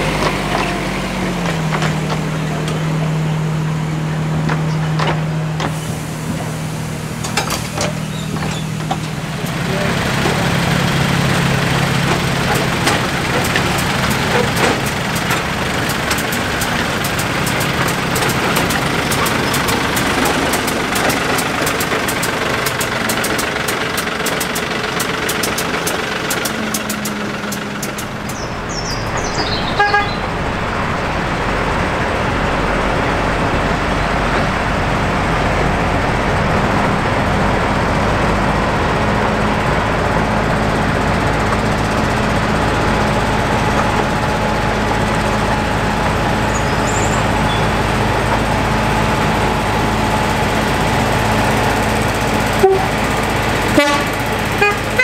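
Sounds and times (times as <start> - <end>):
diesel locomotive engines running: 0.0 - 55.0
train horn toot: 29.8 - 30.2, 52.6 - 53.0, 53.7 - 55.0.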